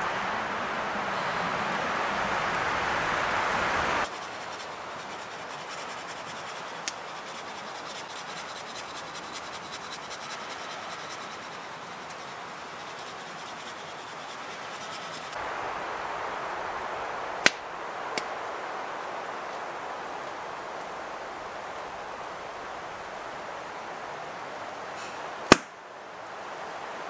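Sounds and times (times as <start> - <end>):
steady hiss: 0.0 - 27.0
wind rushing through trees: 0.0 - 27.0
small ticks and scratches: 4.0 - 15.4.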